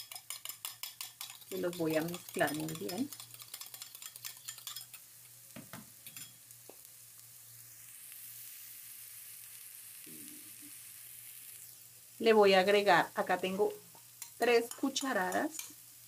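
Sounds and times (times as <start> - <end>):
fork clicking on glass bowl: 0.0 - 5.0
onion sizzling in pan: 0.0 - 16.0.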